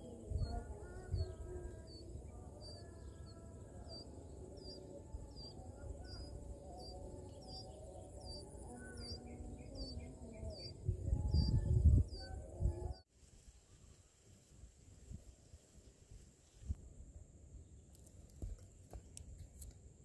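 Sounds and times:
insect buzz: 0:00.0 - 0:12.9.

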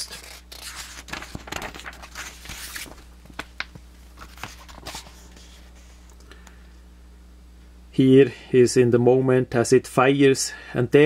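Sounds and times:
paper pages rustling: 0:00.0 - 0:06.2
steady low hum: 0:00.0 - 0:11.0.

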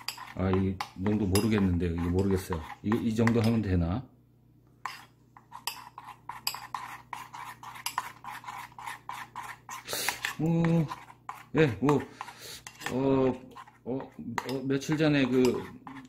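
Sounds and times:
man making wordless sounds: 0:11.5 - 0:12.2, 0:12.9 - 0:15.8.

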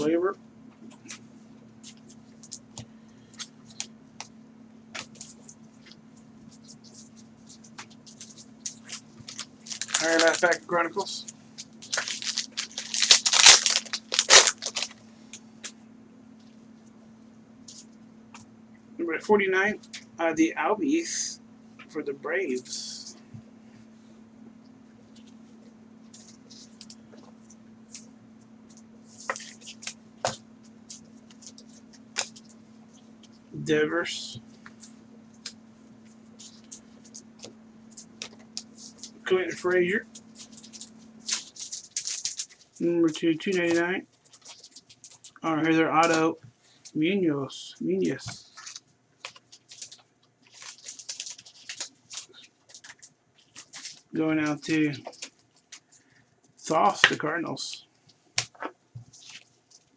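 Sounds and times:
steady low hum: 0:00.0 - 0:59.9
trading cards clicking and rustling: 0:04.9 - 0:15.0, 0:28.7 - 0:32.6, 0:34.6 - 0:45.4, 0:48.0 - 0:56.1
foil pack rustling: 0:05.0 - 0:15.0, 0:36.3 - 0:45.4, 0:48.0 - 0:56.2, 0:58.4 - 0:59.9.

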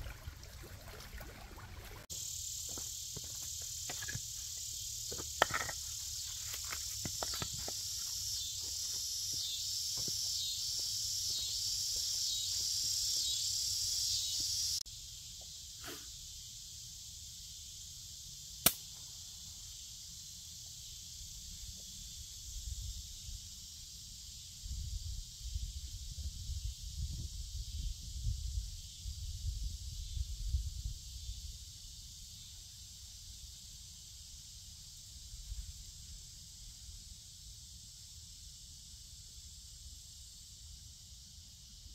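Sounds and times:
pulsing insect chorus: 0:00.0 - 0:41.9
stones knocking: 0:02.7 - 0:04.4, 0:05.1 - 0:05.9, 0:06.5 - 0:07.8
match striking snap: 0:18.6 - 0:18.9.

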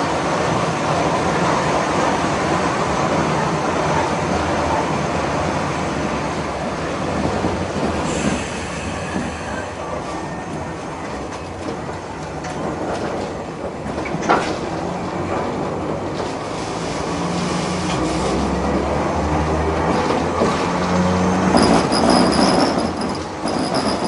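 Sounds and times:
tram wheels rumbling: 0:00.0 - 0:24.0
high wheel squeal: 0:21.0 - 0:24.0.

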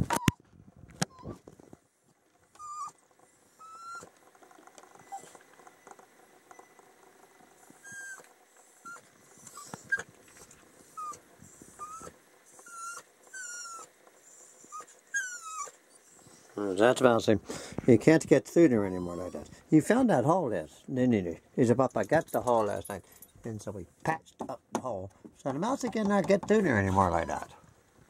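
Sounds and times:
small dog whimpering: 0:00.0 - 0:00.4, 0:01.0 - 0:01.4, 0:02.6 - 0:05.4, 0:07.6 - 0:16.9, 0:18.8 - 0:19.6, 0:26.8 - 0:27.6
faint ticking and scratching: 0:00.9 - 0:28.0.

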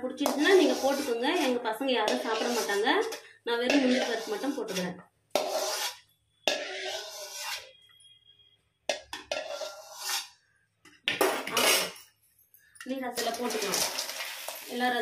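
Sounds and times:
ladle scraping a metal pan: 0:00.2 - 0:07.8, 0:08.9 - 0:10.4.

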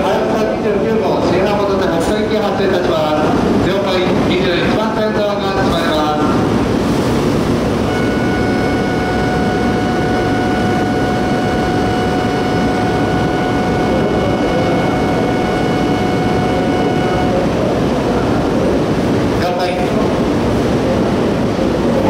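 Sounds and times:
low rumble of train: 0:00.0 - 0:22.0
electronic departure bell ringing: 0:07.9 - 0:17.8.

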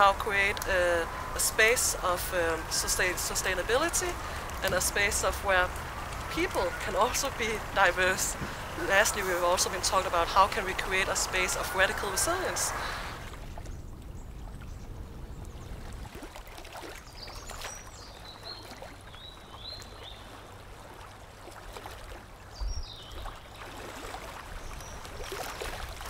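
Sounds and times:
low outdoor rumble: 0:00.0 - 0:16.3.

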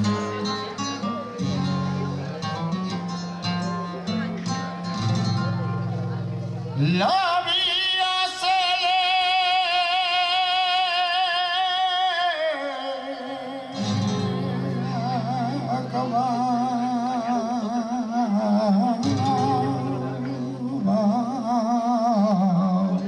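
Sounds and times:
flamenco guitar: 0:00.0 - 0:23.0
man singing flamenco: 0:06.7 - 0:23.0.

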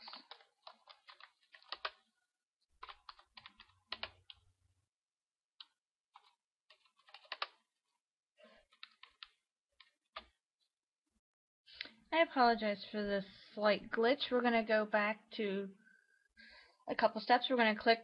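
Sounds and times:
typing on computer keyboard: 0:00.0 - 0:02.0, 0:02.8 - 0:04.4, 0:05.6 - 0:07.6, 0:08.7 - 0:10.3.

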